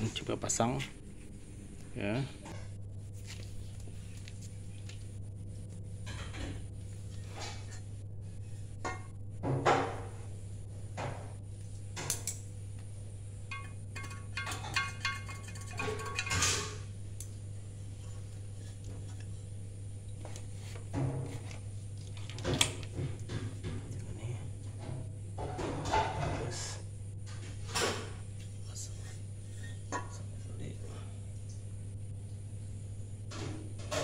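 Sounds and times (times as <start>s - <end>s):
steady low hum: 0.0s - 34.0s
metal parts knocking and clinking: 13.5s - 16.8s.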